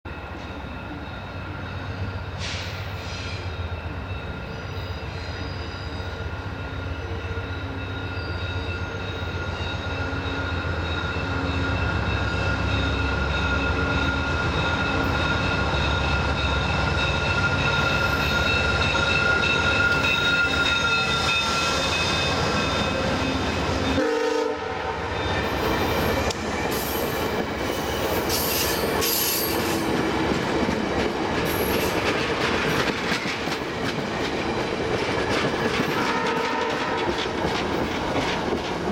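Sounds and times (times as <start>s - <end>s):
train horn tones: 22.4s - 25.6s, 35.8s - 37.3s
train wheels clickety-clack: 25.2s - 38.9s.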